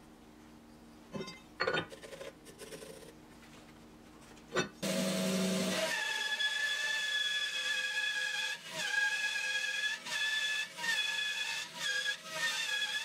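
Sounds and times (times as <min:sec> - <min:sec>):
bandsaw whining: 0:04.8 - 0:13.0.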